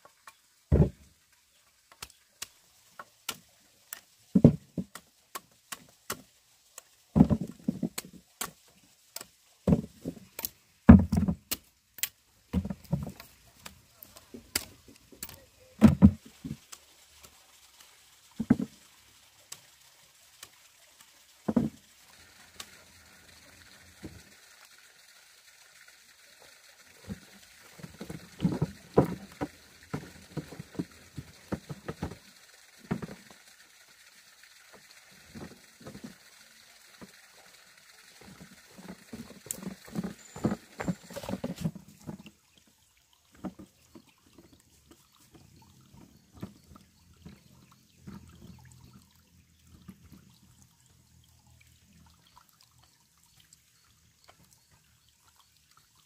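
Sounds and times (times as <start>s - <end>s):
hoe digging in earth: 39.5s - 41.8s.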